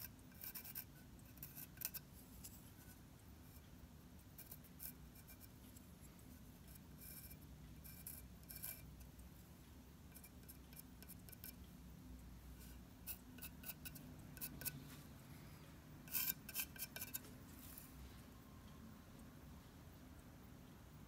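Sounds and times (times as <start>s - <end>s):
pencil scratching on ceramic: 0.0s - 9.4s, 10.1s - 11.7s, 12.5s - 15.0s, 16.0s - 18.0s.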